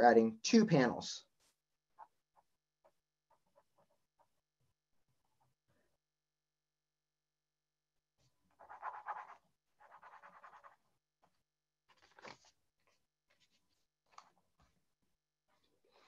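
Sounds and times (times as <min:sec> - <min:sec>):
pencil scratching on paper: 0:01.9 - 0:04.4, 0:08.5 - 0:11.4.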